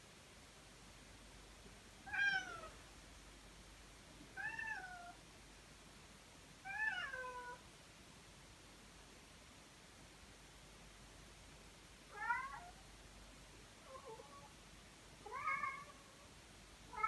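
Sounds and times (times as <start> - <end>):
cat meowing: 2.1 - 2.8, 4.4 - 5.2, 6.6 - 7.6, 12.1 - 12.8, 15.2 - 16.2.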